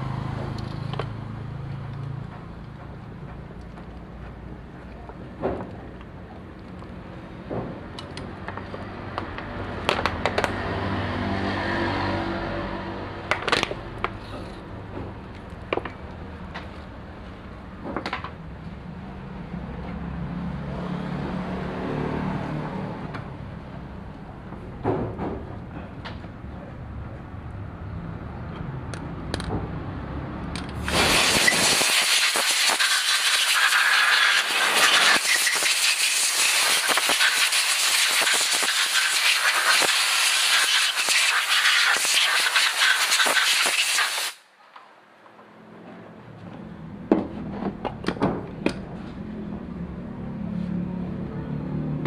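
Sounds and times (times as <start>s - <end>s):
loud hiss of air spray: 30.8s - 44.5s.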